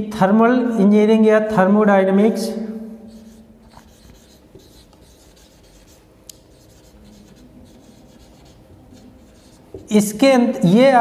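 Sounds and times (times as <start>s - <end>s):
marker scratching on whiteboard: 3.1s - 10.1s.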